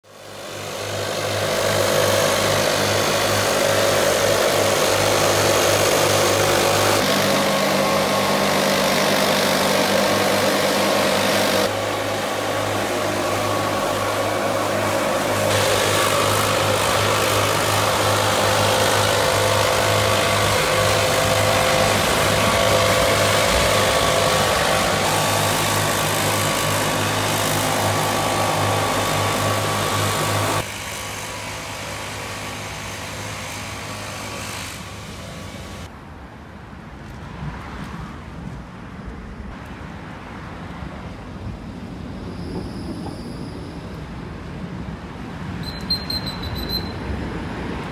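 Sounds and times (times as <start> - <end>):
leaf blowers droning: 0.0 - 35.9.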